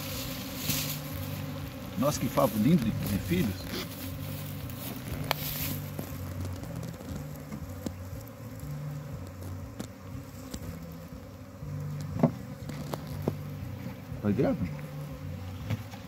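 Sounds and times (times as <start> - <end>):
honeybees buzzing: 0.0 - 16.0
hands knocking wooden hive frame: 12.0 - 13.5.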